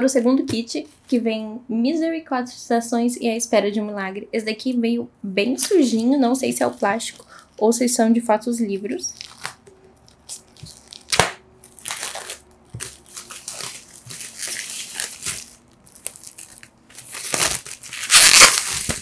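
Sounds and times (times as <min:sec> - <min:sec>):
plastic wrap crinkling and tearing: 0:09.0 - 0:19.0.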